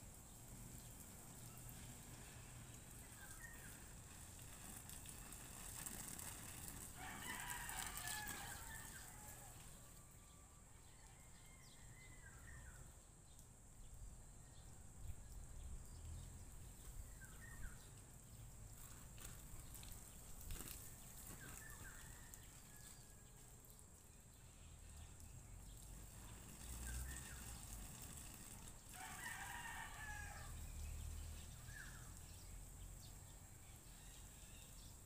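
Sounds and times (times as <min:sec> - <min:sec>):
faint rooster crow: 0:06.9 - 0:12.9, 0:20.7 - 0:23.8, 0:28.8 - 0:32.2.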